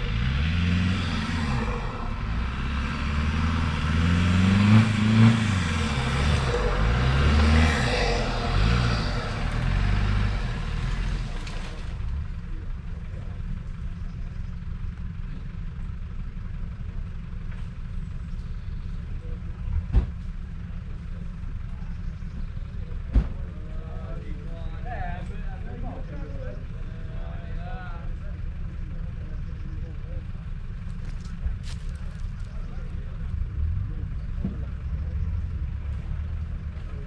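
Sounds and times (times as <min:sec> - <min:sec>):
engine revving: 0:00.0 - 0:13.0
rushing noise: 0:01.0 - 0:11.6.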